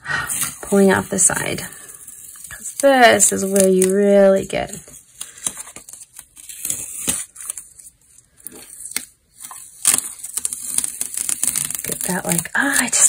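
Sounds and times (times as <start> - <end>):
masking tape peeling off paper: 0.2 - 13.0.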